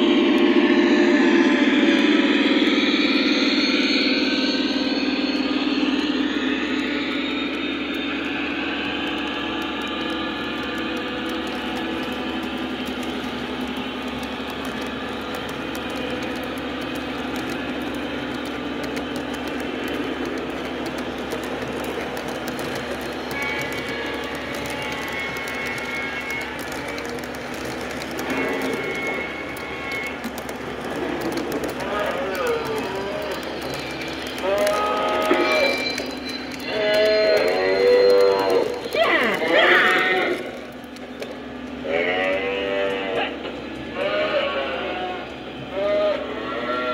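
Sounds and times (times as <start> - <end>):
diesel locomotive engine: 0.0 - 46.9
model train wheels clattering on rail: 7.6 - 43.6.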